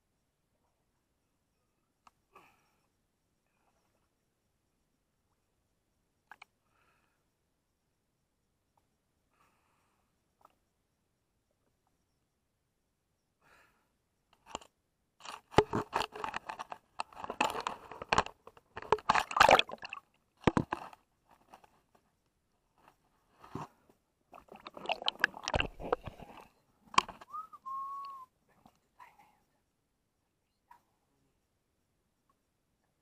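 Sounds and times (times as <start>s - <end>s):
water splashing against camera: 14.4s - 21.9s, 23.4s - 28.2s
crackling and knocking: 14.4s - 22.0s
whistle-like tone: 27.2s - 28.4s.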